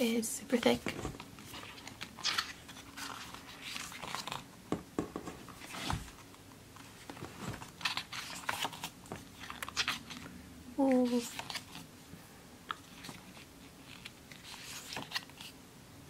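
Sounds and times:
glossy pages turning: 1.0 - 4.5, 5.5 - 10.3, 10.9 - 11.9, 12.7 - 15.6.

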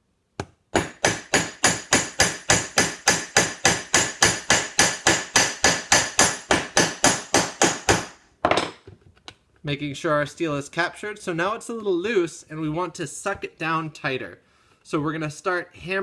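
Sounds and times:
hammer striking rivet on anvil: 0.4 - 8.8.

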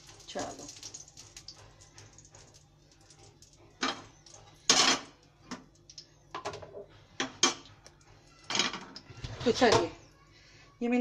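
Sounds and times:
kitchenware clinks and knocks: 3.8 - 5.6, 8.4 - 10.0.

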